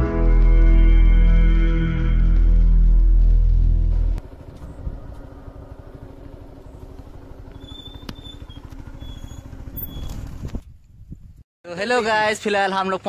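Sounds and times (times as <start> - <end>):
motorcycle engine running: 2.2 - 11.4.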